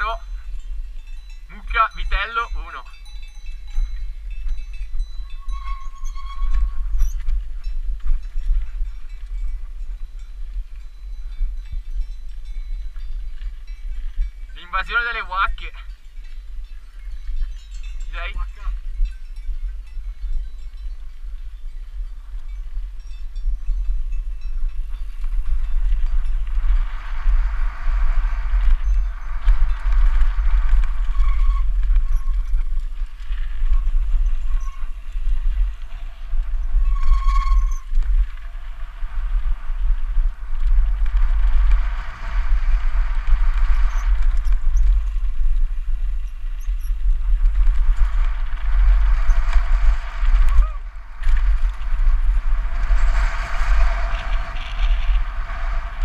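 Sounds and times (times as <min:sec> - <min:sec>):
wind buffeting camera: 0:00.0 - 0:56.0
short high squeal: 0:05.3 - 0:07.2, 0:36.9 - 0:38.0.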